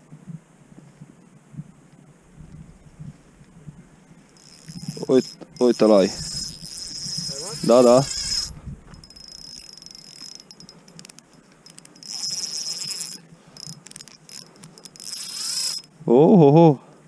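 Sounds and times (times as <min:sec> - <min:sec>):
fishing reel drag buzzing: 0:04.3 - 0:16.0
reel clicks: 0:04.3 - 0:16.0.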